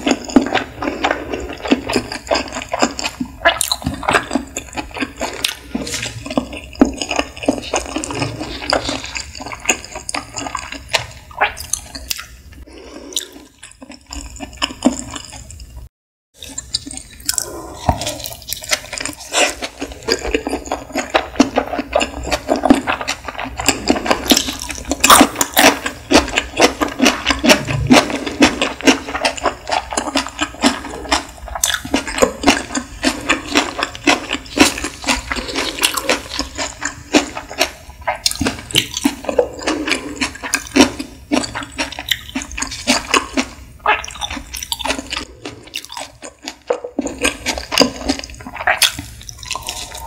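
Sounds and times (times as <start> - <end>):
wet chewing mouth sounds: 0.0 - 15.8, 16.4 - 50.0.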